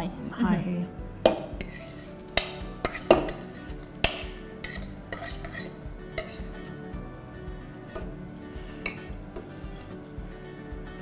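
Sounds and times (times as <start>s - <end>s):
fork scraping rice from bowl: 1.6s - 2.2s, 2.8s - 4.0s, 4.6s - 6.8s.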